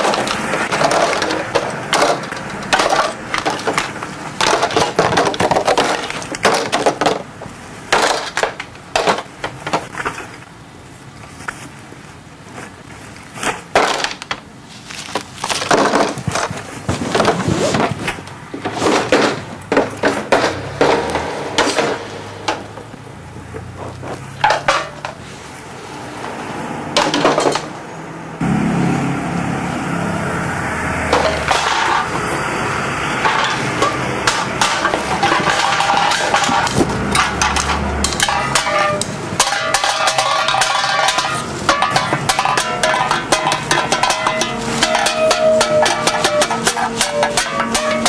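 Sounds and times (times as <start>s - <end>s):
cans and bins struck as percussion: 33.3s - 48.0s.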